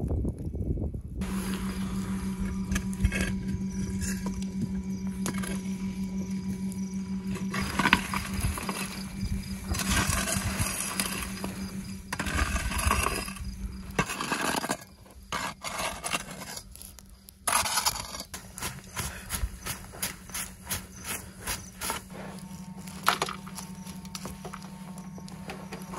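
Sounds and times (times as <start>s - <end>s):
shovel scraping ash on steel: 1.2s - 19.0s
brushwood sweeping ashes: 1.2s - 25.9s
coals clicking: 1.2s - 25.9s.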